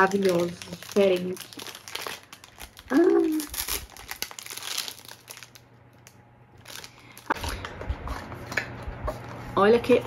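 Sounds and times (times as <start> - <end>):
cellophane wrap crinkling: 0.0 - 7.7.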